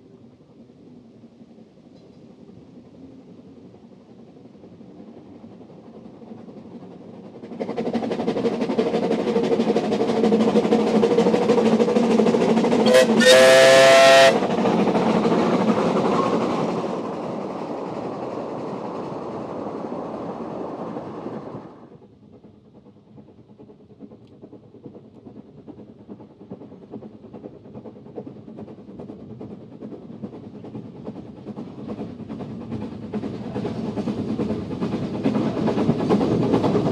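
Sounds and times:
steam locomotives running past: 0.0 - 36.9
steam whistle: 12.8 - 14.4.

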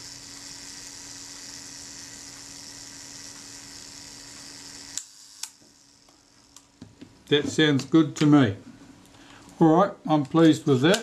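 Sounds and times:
camera self-timer buzzing: 0.0 - 6.9.

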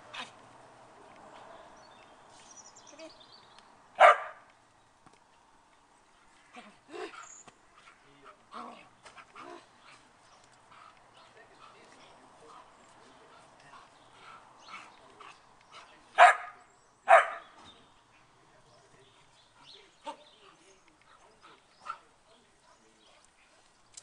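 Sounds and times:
dog barking: 4.0 - 4.5, 16.2 - 17.5.

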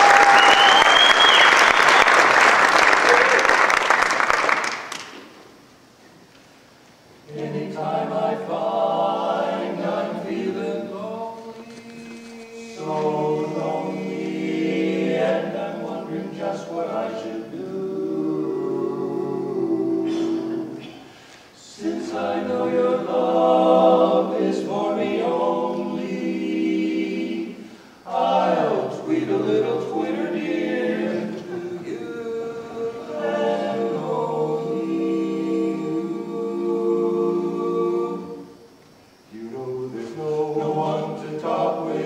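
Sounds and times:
men singing close harmony: 7.3 - 21.0, 21.6 - 38.6, 39.3 - 42.0.

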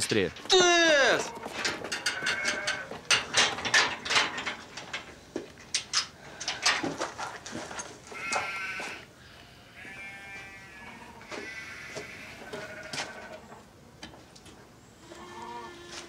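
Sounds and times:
sheep or goat bleating: 0.5 - 2.9, 8.1 - 13.5, 15.1 - 16.0
scuffling knocks and clicks: 1.3 - 9.0.

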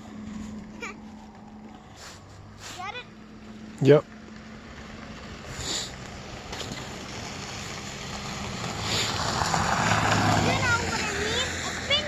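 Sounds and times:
snow shovel scraping snow: 0.2 - 3.0, 5.5 - 5.9, 6.6 - 11.4.

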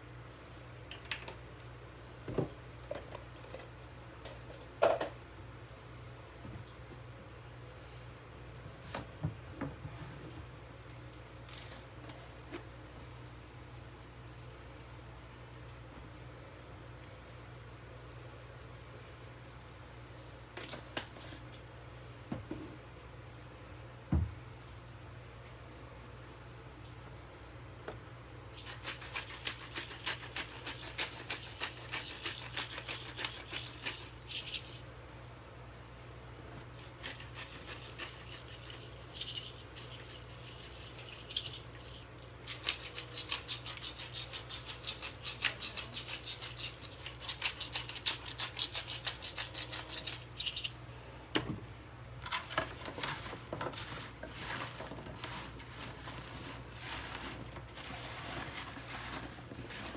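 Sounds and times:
vegetables shuffled on metal pan: 52.2 - 59.9.

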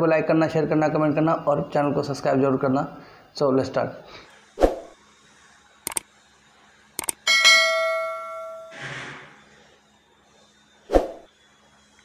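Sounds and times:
mouse clicks: 5.9 - 6.1, 7.0 - 7.2
bright bell ding: 7.3 - 8.8
short whoosh: 10.9 - 11.3.

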